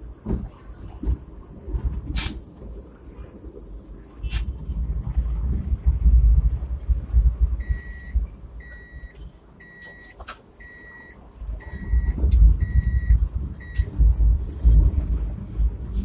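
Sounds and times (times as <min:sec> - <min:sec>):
tram rumbling over rails: 0:00.0 - 0:16.0
electronic warning beep: 0:07.6 - 0:14.0.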